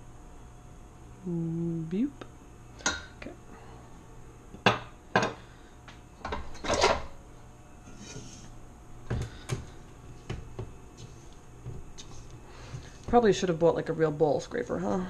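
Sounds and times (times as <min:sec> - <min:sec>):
metal kitchenware clunks: 0:06.2 - 0:07.1.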